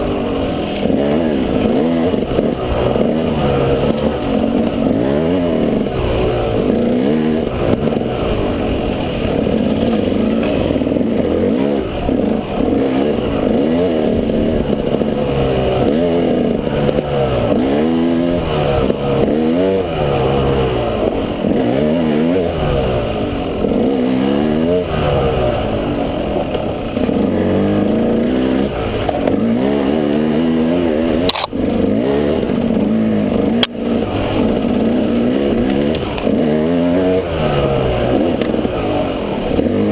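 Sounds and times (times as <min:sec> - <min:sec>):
off-road vehicle engine revving: 0:00.0 - 0:39.9.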